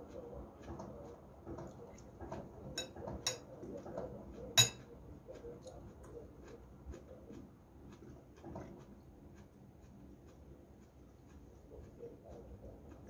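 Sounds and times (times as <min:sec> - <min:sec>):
soft eating sounds: 0:00.0 - 0:13.0
cutlery clinking against glass bowl: 0:01.6 - 0:04.9.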